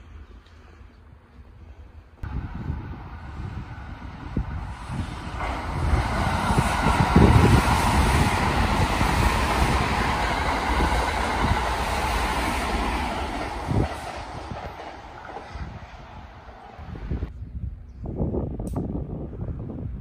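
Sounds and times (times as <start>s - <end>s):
electric train running: 2.3s - 17.0s.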